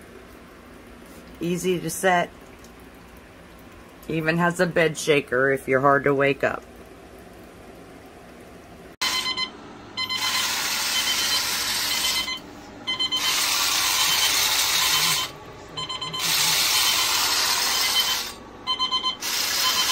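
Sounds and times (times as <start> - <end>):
alarm clock short beeps: 9.0 - 19.9.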